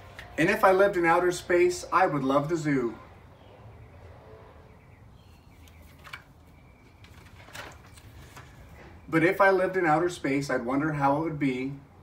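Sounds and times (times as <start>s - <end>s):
faint bird chirps: 3.4s - 7.2s
paper page rustling: 5.6s - 9.0s.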